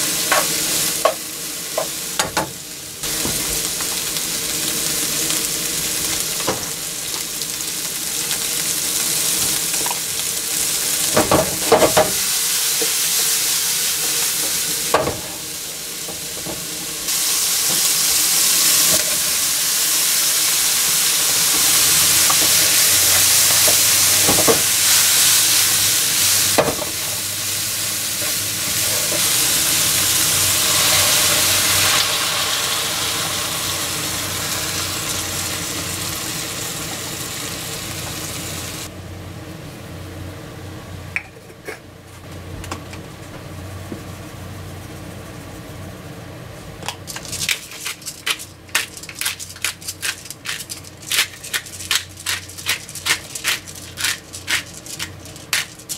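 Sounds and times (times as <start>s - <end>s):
food sizzling in a frying pan: 0.0s - 38.9s.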